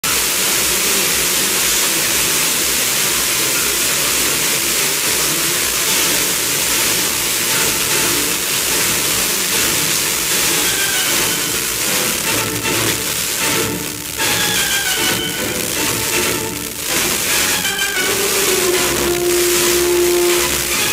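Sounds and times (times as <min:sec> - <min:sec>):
radio receiver hiss: 0:00.0 - 0:20.9
faint tones: 0:14.0 - 0:20.9.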